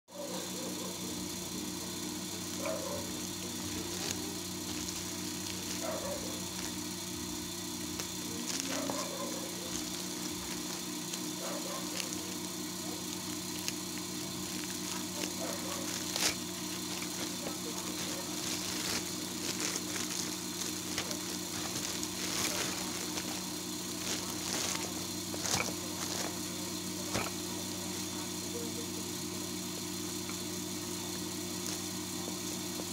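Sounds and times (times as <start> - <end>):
machine hum: 0.1 - 32.9
plastic mailer crinkling: 1.6 - 27.6
scissors snipping plastic: 7.8 - 26.4.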